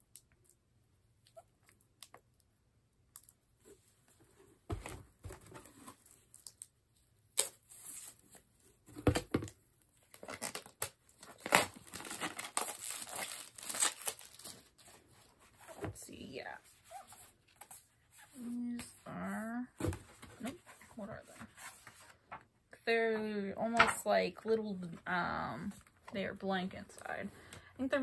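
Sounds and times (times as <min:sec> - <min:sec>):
plastic wrap tearing and crinkling: 0:10.1 - 0:14.8.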